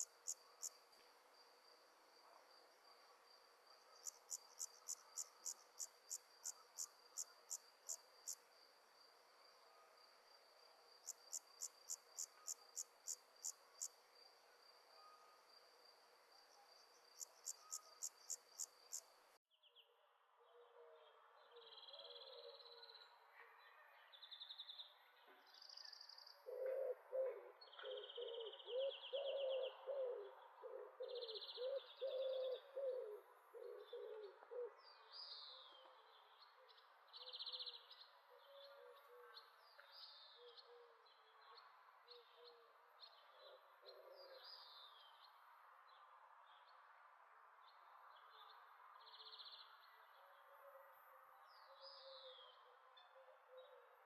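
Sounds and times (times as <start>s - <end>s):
insect chirps: 0.0s - 19.4s.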